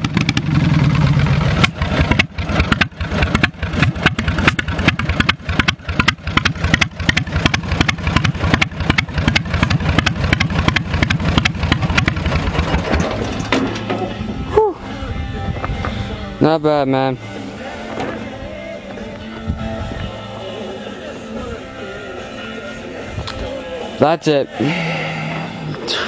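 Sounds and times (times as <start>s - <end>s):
garden tractor engine idling: 0.0s - 14.4s.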